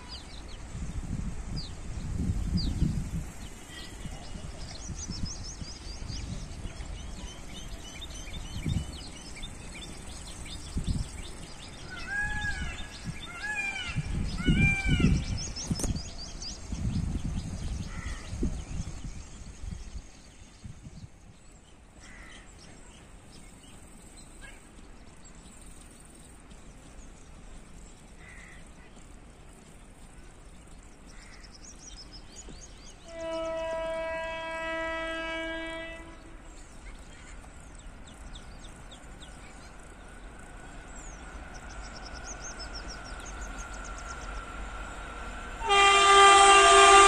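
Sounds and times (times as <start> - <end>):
loud arched bird calls: 11.6 - 15.6
small birds chirping: 36.2 - 45.6.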